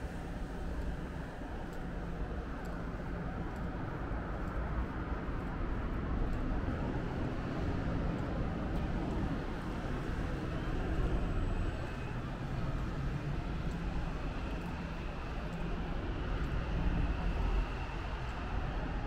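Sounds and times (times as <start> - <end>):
faint light ticks: 0.0 - 19.0
low city rumble: 0.0 - 19.0.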